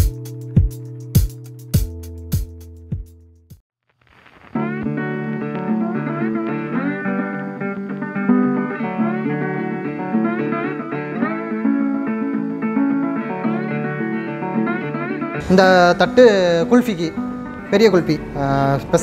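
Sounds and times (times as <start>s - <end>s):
plucked-string tune with sliding notes: 4.6s - 19.0s.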